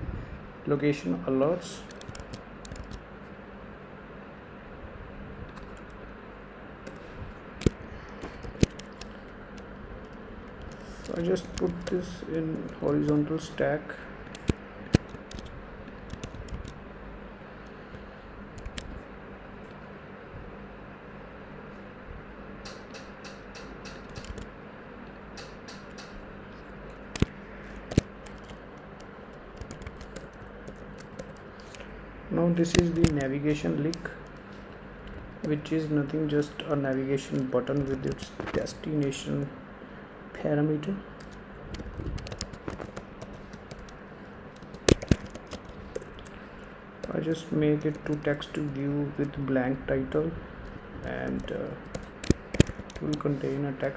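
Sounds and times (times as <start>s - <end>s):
computer keyboard typing: 1.8s - 3.0s, 5.5s - 6.0s, 8.4s - 13.4s, 14.3s - 16.8s, 18.6s - 19.0s, 22.7s - 24.5s, 27.0s - 31.8s, 32.6s - 34.4s, 36.9s - 38.4s, 41.2s - 46.4s, 47.0s - 49.4s, 51.0s - 53.2s
computer keyboard key clicks: 1.9s - 3.0s, 14.3s - 16.8s, 29.6s - 31.4s, 41.2s - 44.0s, 44.6s - 46.3s, 51.9s - 53.2s.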